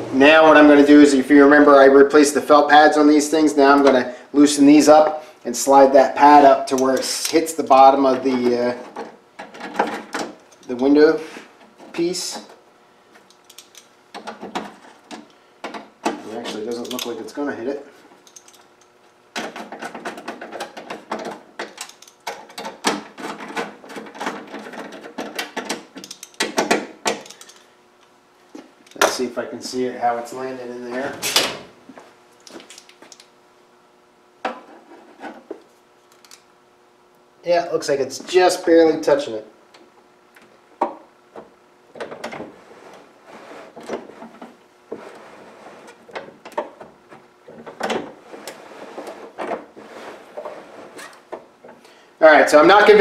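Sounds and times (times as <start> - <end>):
screwdriver clicking on metal: 25.4 - 27.6.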